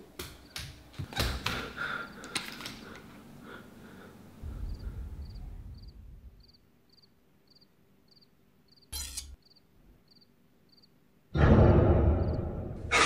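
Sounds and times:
crickets chirping: 1.8 - 2.3, 3.9 - 11.1, 12.1 - 12.8
low rumble: 4.4 - 6.5.

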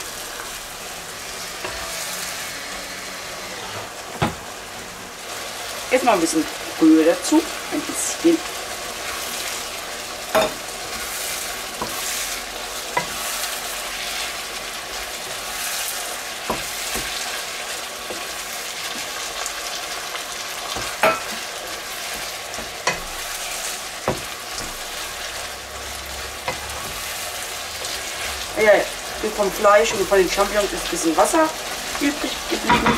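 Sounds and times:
chicken sizzling in a frying pan: 0.0 - 32.9
wooden spatula knocking pan: 24.0 - 24.8.

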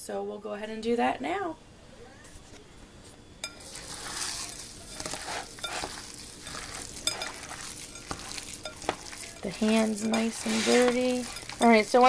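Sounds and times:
hand kneading squelching mixture: 3.5 - 12.0.

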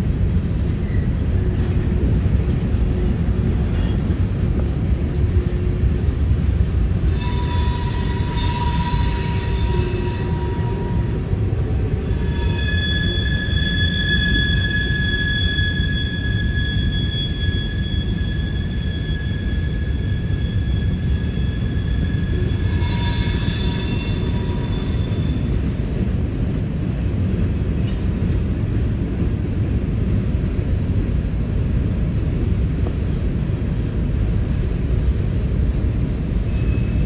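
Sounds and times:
train wheels rumbling on rail: 0.0 - 37.0
high-pitched wheel squeal: 7.0 - 25.6, 36.5 - 37.0.

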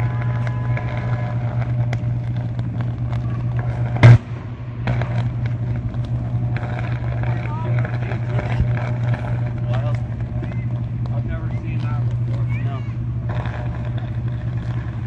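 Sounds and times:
electrical arcing crackles: 0.0 - 15.0
power line humming: 0.0 - 15.0
loud sharp bang: 3.2 - 5.8.

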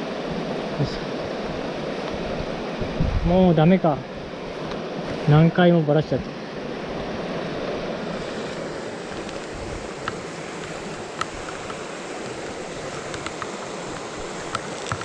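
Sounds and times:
stream rushing over rocks: 0.0 - 15.0
faint clicks: 9.1 - 15.0.

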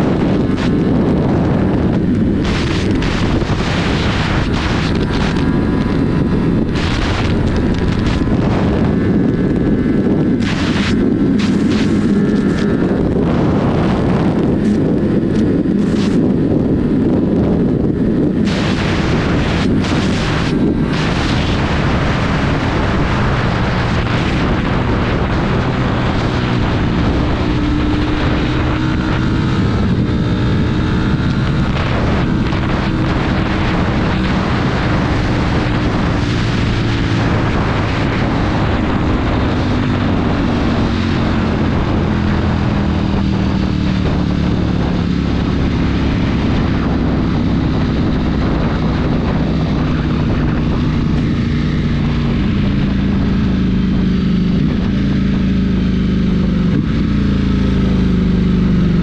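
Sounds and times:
motorcycle engine running hard: 0.0 - 59.0
wind buffeting microphone: 0.0 - 59.0.

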